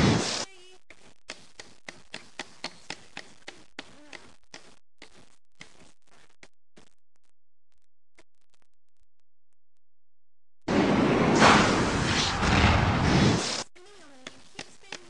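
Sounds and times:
loud burst of noise: 10.7s - 13.6s.

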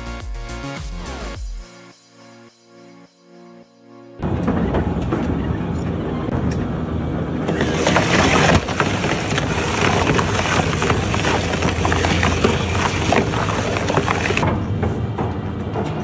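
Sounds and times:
shredder tearing tyre: 7.4s - 14.5s.

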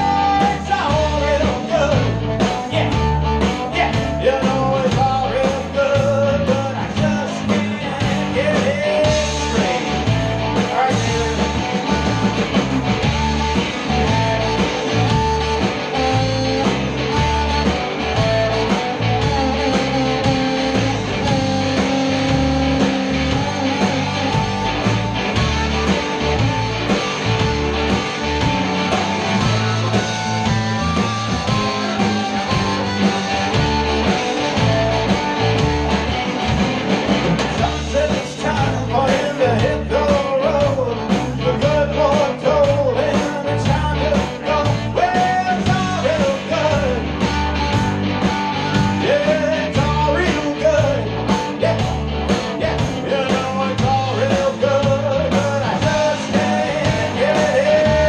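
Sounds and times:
blues band playing: 0.0s - 58.0s
harmonica playing lead: 8.8s - 37.7s.

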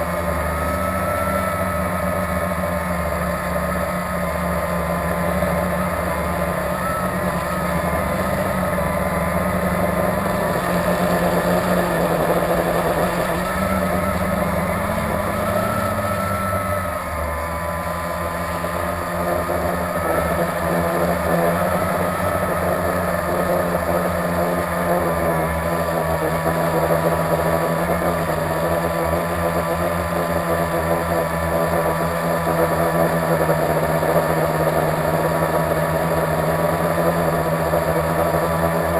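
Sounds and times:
quadcopter propellers buzzing: 0.0s - 38.9s.

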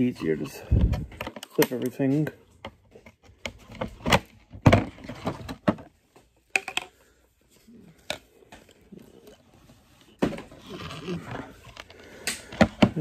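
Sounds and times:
plastic parts clicking: 0.8s - 5.9s, 6.5s - 7.0s, 10.5s - 13.0s.

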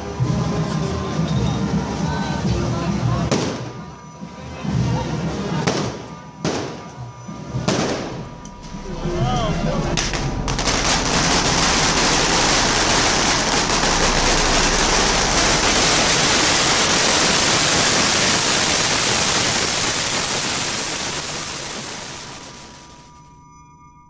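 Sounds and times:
firecrackers crackling: 3.3s - 4.0s, 5.1s - 8.4s, 10.0s - 23.2s.

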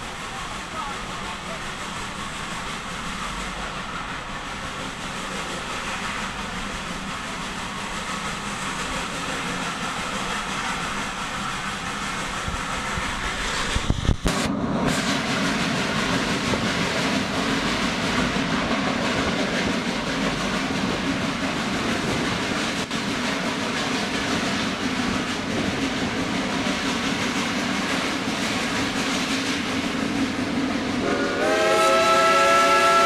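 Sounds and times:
steam train running: 0.0s - 33.0s
steam locomotive whistle: 31.0s - 33.0s.

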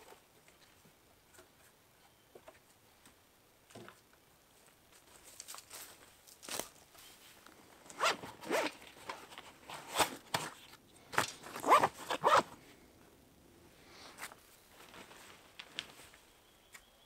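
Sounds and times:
faint rustling of gear: 3.8s - 13.2s, 13.9s - 16.4s
zipper being pulled open: 7.9s - 8.8s, 11.4s - 12.6s.

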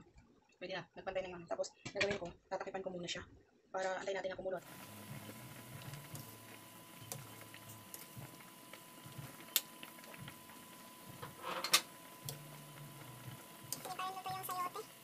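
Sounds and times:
soup bubbling with pops: 4.6s - 14.0s.

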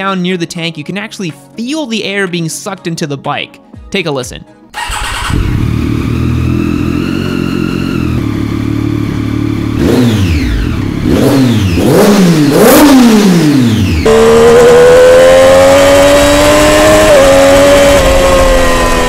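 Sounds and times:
motorcycle engine idling and revving: 4.8s - 19.0s.

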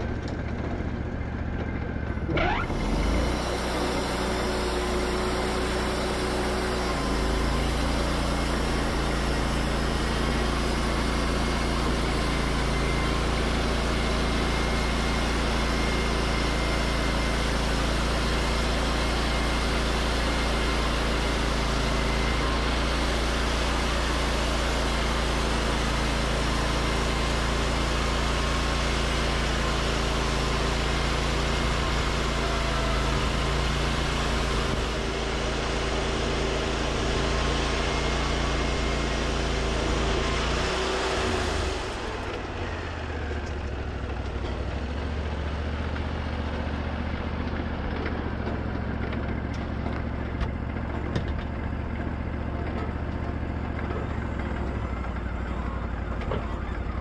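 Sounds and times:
sawmill engine humming: 0.0s - 57.0s.

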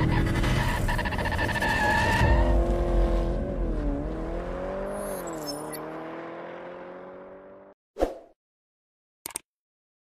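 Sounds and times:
car engine: 0.0s - 7.8s.

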